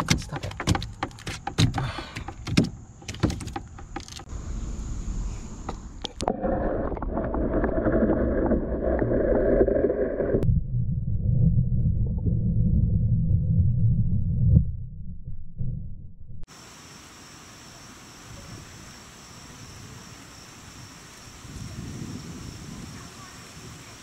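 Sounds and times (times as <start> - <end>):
fish knocking against canoe hull: 0.0 - 4.2
muffled underwater rush: 4.3 - 14.8
low underwater rumble: 4.4 - 16.5.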